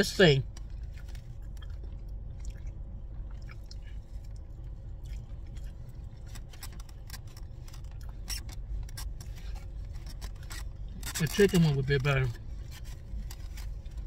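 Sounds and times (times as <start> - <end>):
low steady hum: 0.0 - 14.0
person chewing food: 0.5 - 11.0.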